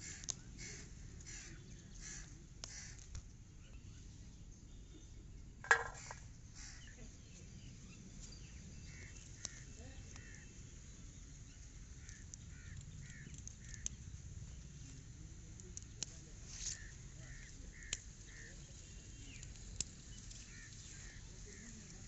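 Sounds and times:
beans clattering on steel plate: 5.7s - 6.2s
bird calls: 5.7s - 14.0s.

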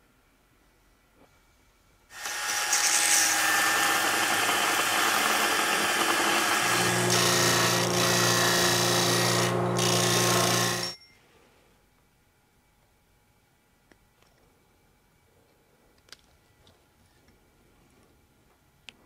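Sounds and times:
disc sander grinding metal: 2.2s - 10.9s.

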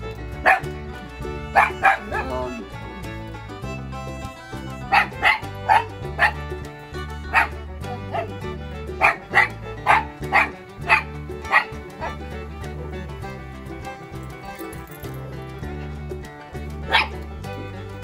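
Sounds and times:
background music: 0.0s - 18.0s
small dog barking: 0.4s - 0.7s, 1.6s - 2.6s, 4.9s - 6.4s, 7.3s - 8.3s, 9.0s - 12.2s, 16.9s - 17.2s.

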